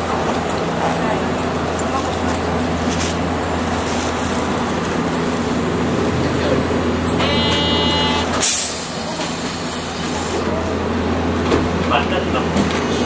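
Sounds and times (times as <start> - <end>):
tram equipment hum: 0.0 - 13.0
buzzer: 7.2 - 8.4.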